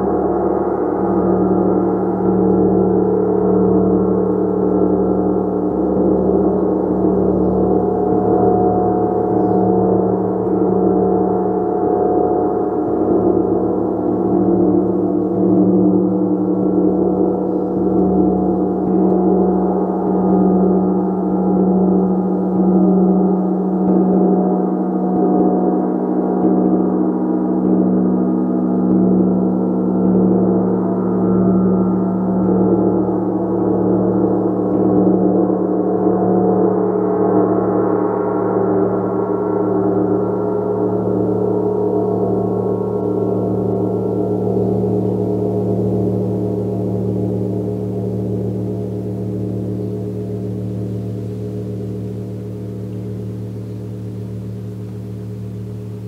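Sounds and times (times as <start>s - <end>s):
deep hum: 27.9s - 56.0s.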